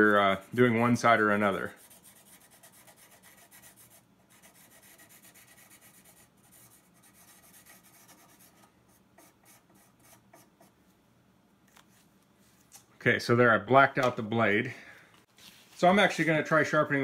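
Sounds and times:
marker scratching on metal: 1.5 - 10.8.

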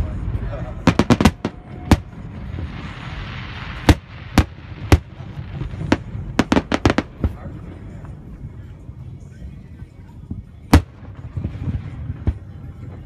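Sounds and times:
fireworks booming: 0.0 - 7.4, 10.7 - 13.0.

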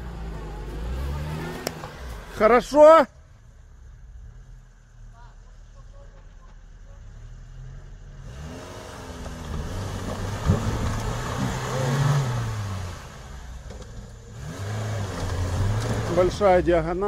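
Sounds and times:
car engine revving: 0.0 - 2.8, 7.0 - 17.0.

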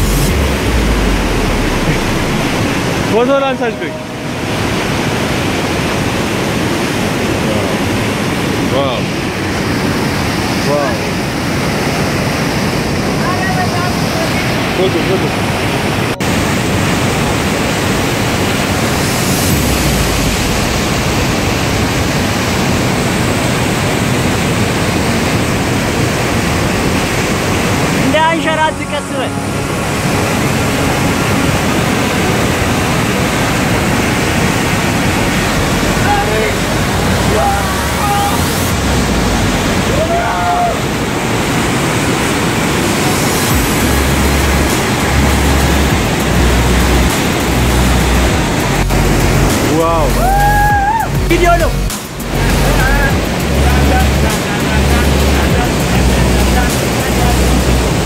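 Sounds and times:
low rumble: 0.0 - 7.3, 17.8 - 24.3, 26.6 - 58.0
waterfall rushing loudly: 0.0 - 58.0.

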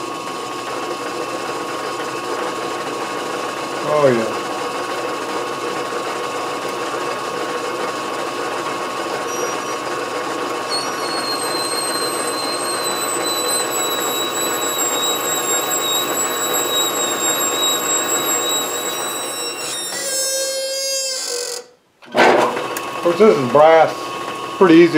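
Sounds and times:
lathe motor and gear hum: 0.2 - 19.9
thin high whine: 9.2 - 20.6.

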